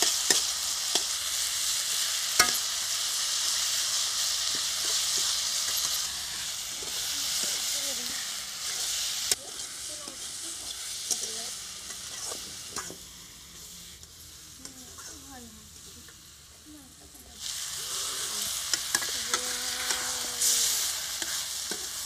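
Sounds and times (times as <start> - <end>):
fish frying in oil: 0.0 - 22.0
metal spatula scraping pan: 11.0 - 13.0, 17.9 - 22.0.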